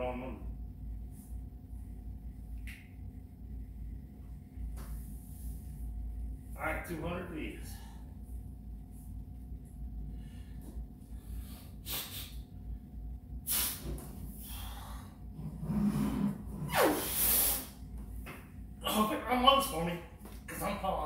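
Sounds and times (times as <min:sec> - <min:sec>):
man's forceful breaths: 0:10.1 - 0:12.4, 0:13.5 - 0:15.4.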